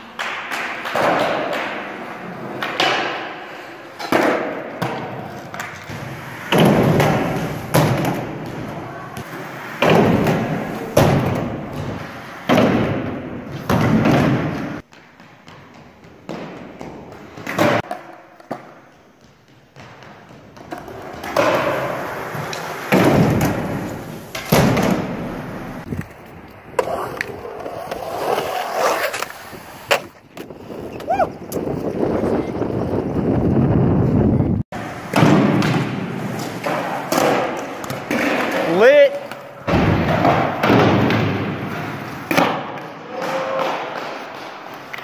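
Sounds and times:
skateboard wheels rolling: 0.0s - 14.9s, 15.6s - 45.0s
skateboard landing bangs: 0.2s - 14.8s, 20.7s - 26.0s, 34.8s - 38.6s, 39.6s - 44.0s.

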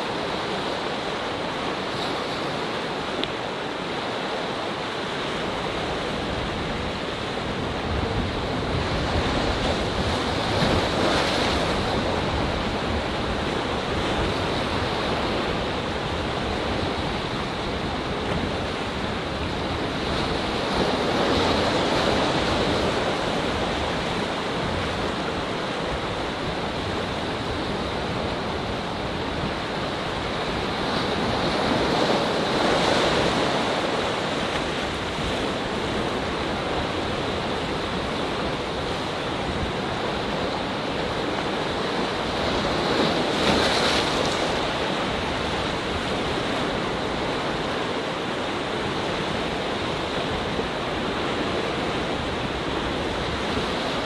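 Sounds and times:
waves breaking on rocks: 0.1s - 54.0s.

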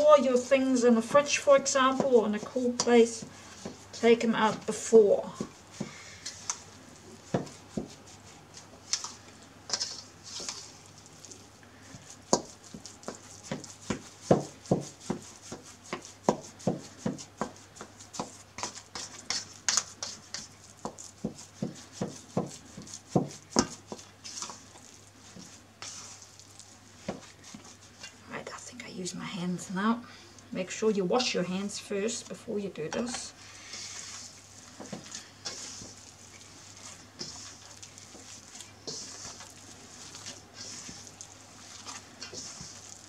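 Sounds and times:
scraper tapping metal bowl: 0.1s - 6.6s, 36.8s - 43.0s
soft scraping swishes: 33.1s - 43.0s.

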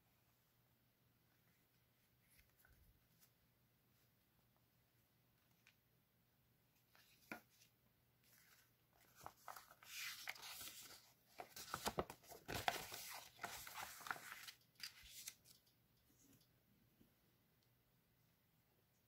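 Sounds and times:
paper rustling and crackling: 6.9s - 15.6s.

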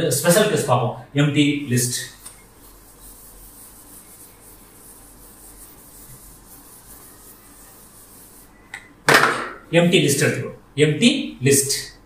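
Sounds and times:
eraser rubbing on whiteboard: 1.8s - 8.6s.

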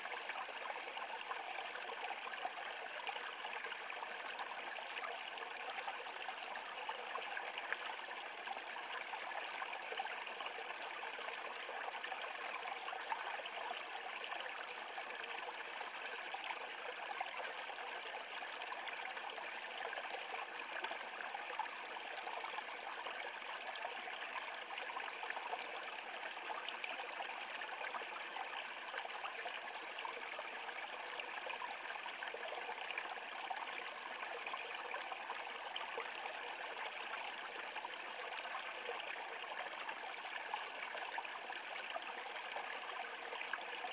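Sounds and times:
stream running over rocks: 0.0s - 43.9s.

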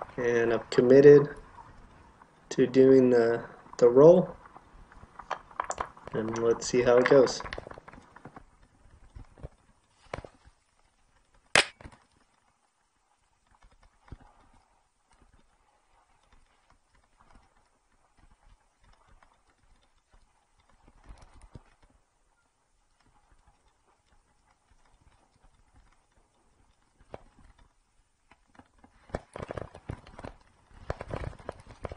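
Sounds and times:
mountain bike rattling on dirt trail: 22.8s - 31.9s.

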